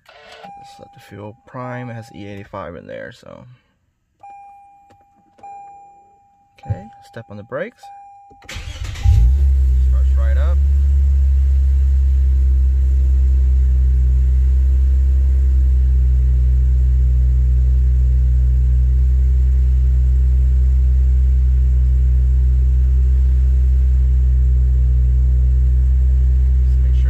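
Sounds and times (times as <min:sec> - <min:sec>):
car engine idling: 0:08.5 - 0:27.0.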